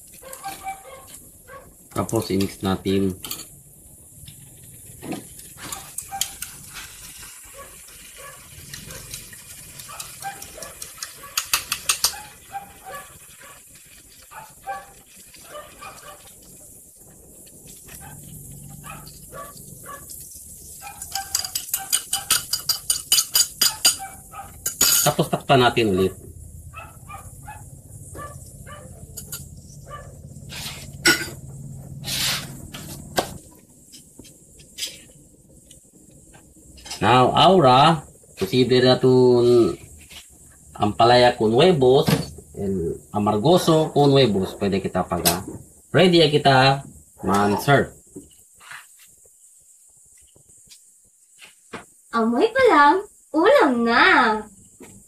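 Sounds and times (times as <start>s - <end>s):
pan hissing: 0.0s - 54.8s
kitchen clatter: 1.9s - 3.6s, 5.0s - 16.6s, 17.5s - 25.4s, 29.1s - 29.6s, 30.9s - 31.7s
low steady hum: 14.3s - 43.4s
fork clinking on glass bowl: 20.9s - 25.2s, 29.1s - 29.5s
short rushing hiss: 30.4s - 33.4s.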